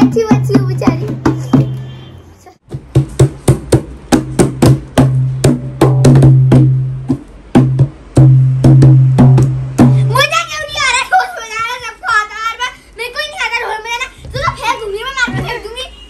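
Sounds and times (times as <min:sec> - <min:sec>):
hand drum beaten unevenly: 0:02.7 - 0:10.0.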